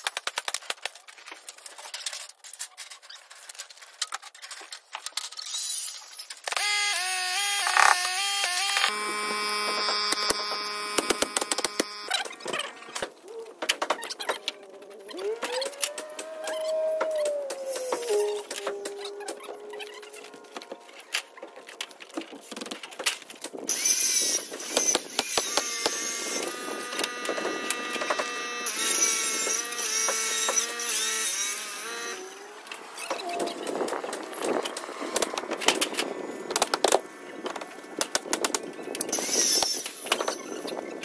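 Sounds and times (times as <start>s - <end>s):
squeaky high-pitched tones: 5.4s - 21.8s
nailer clicks and knocks: 9.6s - 14.6s.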